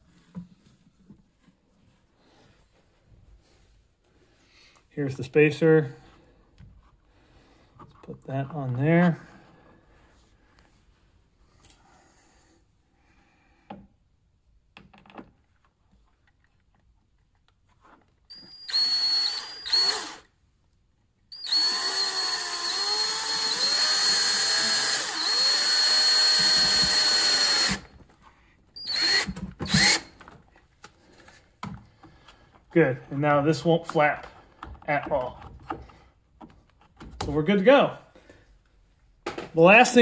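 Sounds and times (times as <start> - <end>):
cordless drill driving screw: 18.3 - 20.3, 21.3 - 27.9, 28.8 - 30.2.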